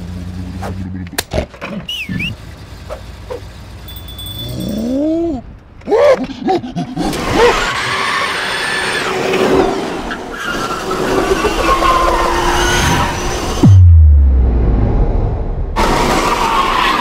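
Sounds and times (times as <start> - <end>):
tyres skidding on concrete: 15.8 - 17.0.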